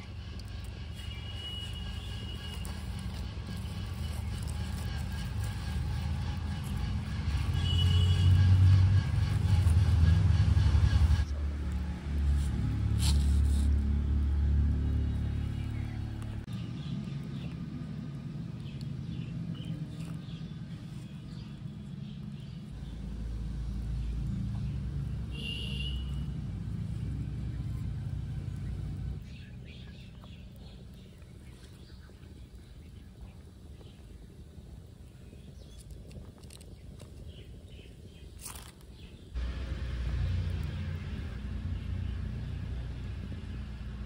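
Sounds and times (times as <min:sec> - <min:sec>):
low steady rumble: 0:00.0 - 0:38.3, 0:39.0 - 0:44.0.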